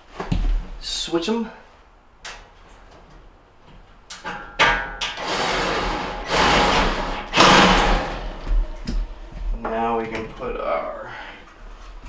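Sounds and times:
metal scraping and rattling: 5.0 - 10.1.

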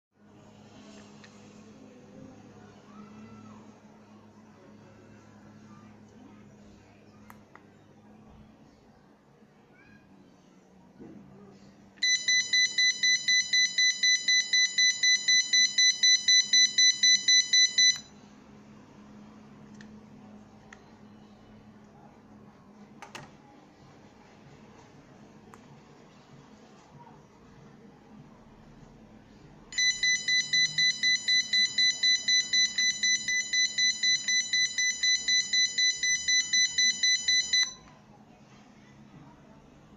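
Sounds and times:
alarm buzzer beeping rapidly: 12.0 - 18.0, 29.8 - 37.8.

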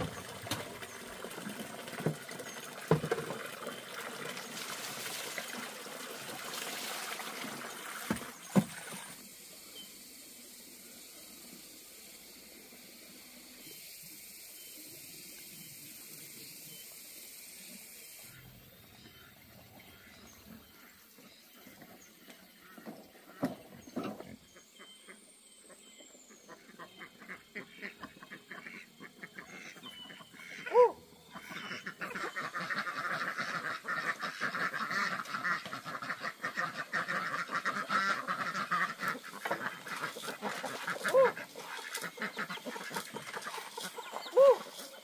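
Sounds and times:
ducks and chickens calling: 26.4 - 45.0
geese honking loudly: 26.6 - 45.0.

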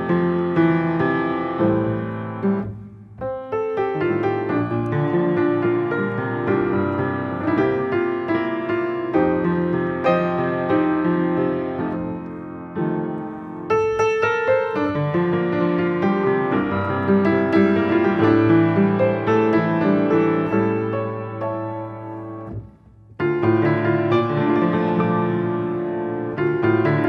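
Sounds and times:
piano playing: 0.0 - 27.0.

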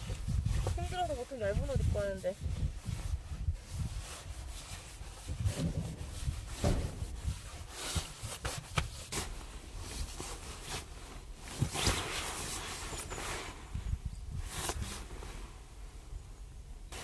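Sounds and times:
sleeping bag rustling: 0.0 - 17.0
soft knocks: 5.5 - 7.4.

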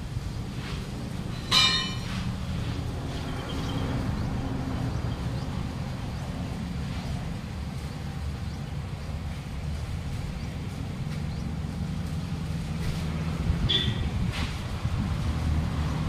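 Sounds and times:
metal clang on wheel: 1.3 - 2.4.

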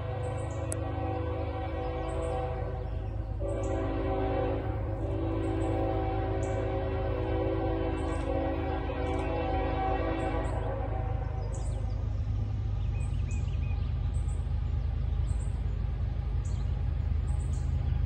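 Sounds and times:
distant locomotive air horn: 0.0 - 12.0
train rumble: 0.0 - 18.0.

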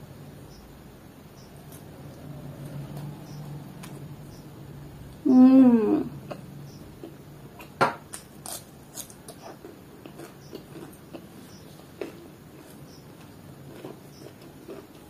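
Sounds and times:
person humming: 5.2 - 6.2
crunchy chewing: 6.2 - 15.0.

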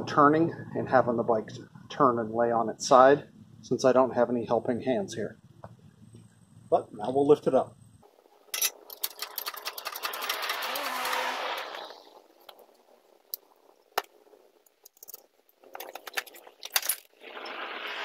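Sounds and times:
metallic clicking and rattling: 8.5 - 10.7, 14.0 - 17.1.

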